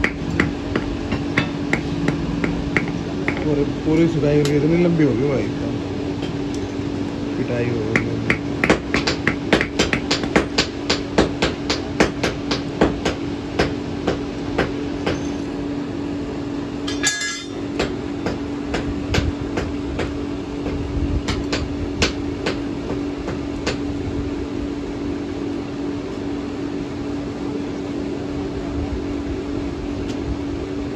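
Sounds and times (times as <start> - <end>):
hammer striking iron on anvil: 0.0 - 4.7, 7.9 - 15.5, 16.8 - 20.1
steady low hum: 0.0 - 30.9.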